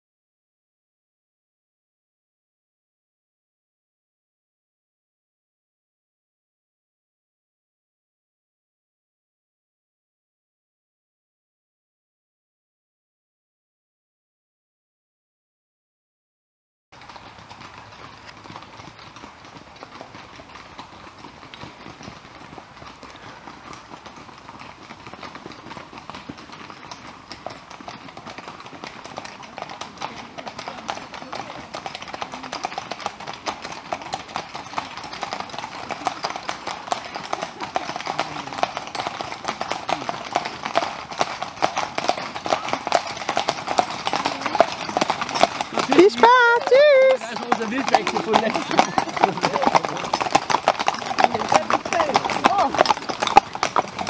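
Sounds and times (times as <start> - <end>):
hooves clip-clopping on wet pavement: 17.0 - 54.0.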